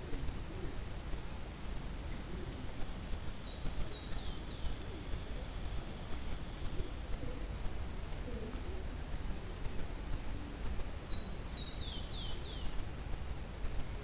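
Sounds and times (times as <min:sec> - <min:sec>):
low rumble and hiss: 0:00.0 - 0:14.0
small bird calling: 0:02.2 - 0:07.6, 0:10.3 - 0:12.8.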